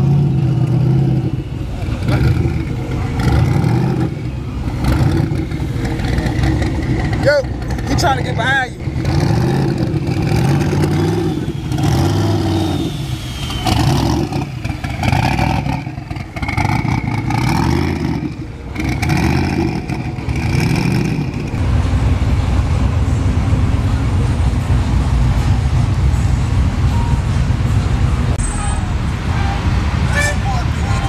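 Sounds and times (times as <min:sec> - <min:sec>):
car engines revving: 0:00.0 - 0:31.0
low engine rumble: 0:00.0 - 0:31.0.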